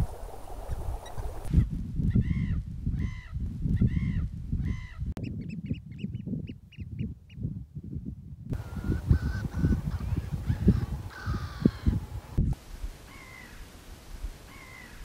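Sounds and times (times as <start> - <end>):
wind buffeting microphone: 0.0 - 13.5
bird calls: 8.6 - 12.1, 13.1 - 13.7, 14.5 - 15.0.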